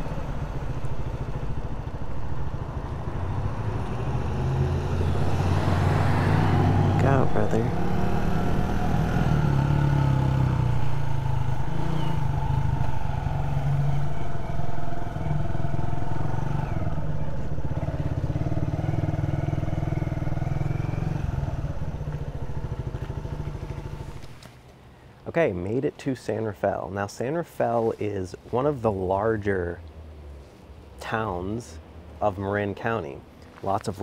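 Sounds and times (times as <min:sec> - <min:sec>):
motorcycle engine running: 0:00.0 - 0:24.4.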